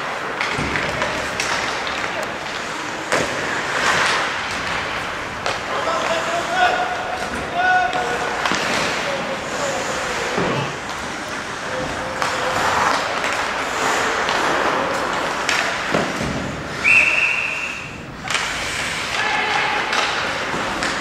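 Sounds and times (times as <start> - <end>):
skates scraping on ice: 0.0 - 21.0
referee's whistle: 16.8 - 18.0.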